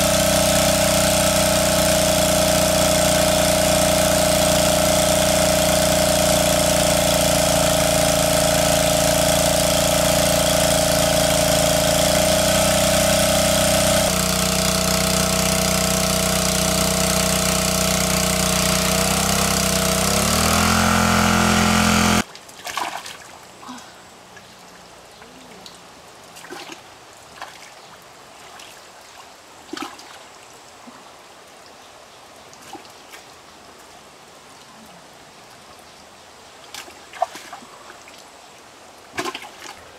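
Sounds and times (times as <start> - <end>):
water pump engine running: 0.0 - 22.3
water splashes and drips: 22.2 - 34.8, 36.6 - 39.8.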